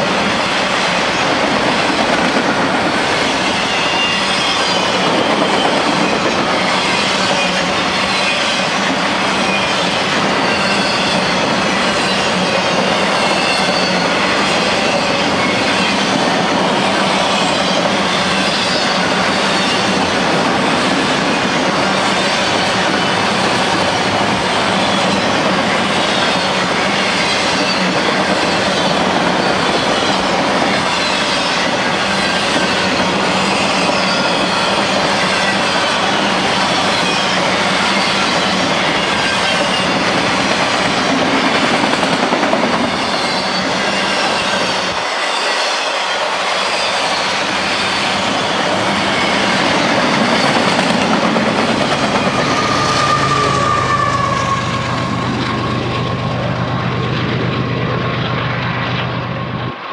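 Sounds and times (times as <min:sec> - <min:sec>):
locomotive passing: 0:00.0 - 0:59.9
train wheels rumbling on rails: 0:00.0 - 0:59.9
faint wheel squeals: 0:52.2 - 0:55.6.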